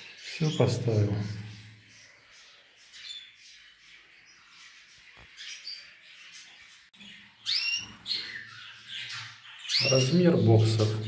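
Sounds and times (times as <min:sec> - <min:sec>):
finches chirping: 0:00.0 - 0:11.0.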